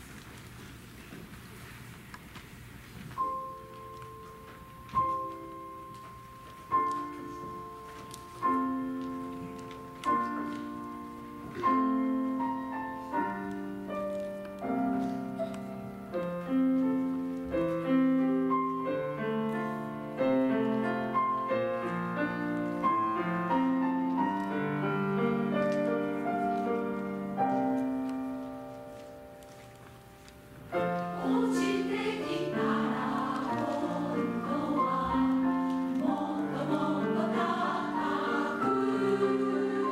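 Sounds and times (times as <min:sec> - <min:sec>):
grand piano playing: 0:03.1 - 0:39.9
women's choir singing: 0:30.8 - 0:39.9.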